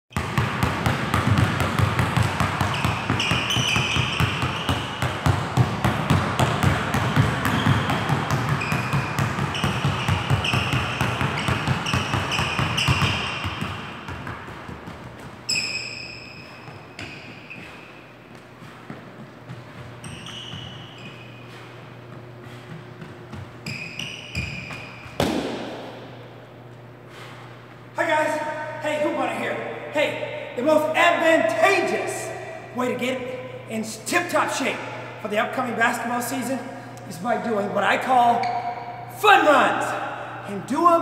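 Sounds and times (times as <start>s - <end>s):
sneaker squeaks: 0.1s - 25.6s, 38.2s - 39.1s
basketball dribbling on wood floor: 0.1s - 25.8s
running footsteps: 16.3s - 25.6s.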